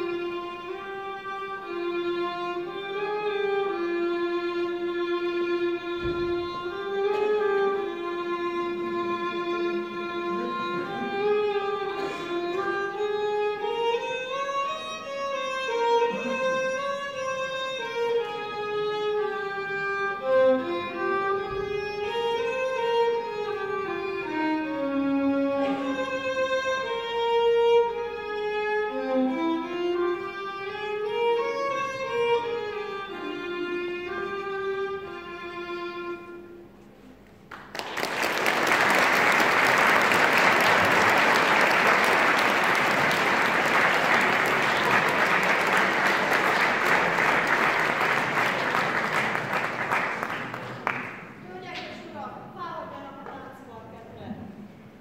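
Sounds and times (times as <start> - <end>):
violin melody: 0.0 - 37.2
applause: 37.5 - 51.4.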